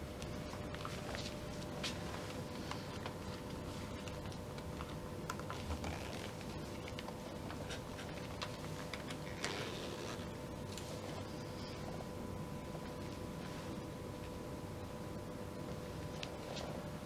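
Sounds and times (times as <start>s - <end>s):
faint steady hum: 0.0s - 17.0s
clicks and rustles of laces: 2.7s - 10.8s.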